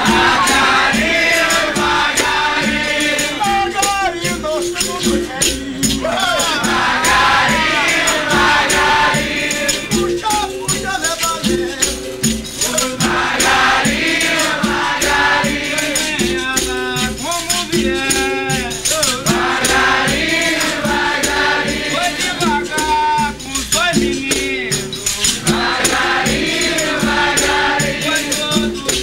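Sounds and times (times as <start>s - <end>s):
berimbaus with rattles: 0.0s - 29.0s
group singing: 0.0s - 29.0s
hand drum: 0.0s - 29.0s
tambourine: 0.0s - 29.0s.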